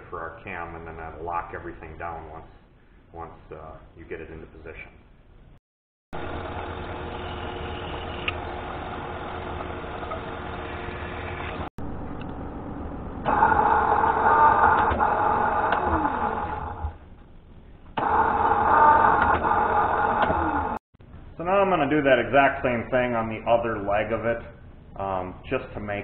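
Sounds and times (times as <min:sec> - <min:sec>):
milling machine drilling metal: 0:06.2 - 0:11.7.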